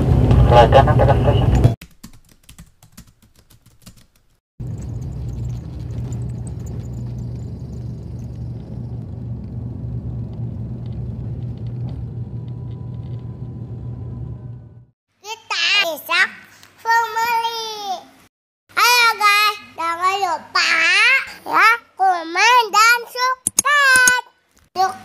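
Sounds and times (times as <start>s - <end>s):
propeller aircraft engines droning: 4.6s - 14.8s.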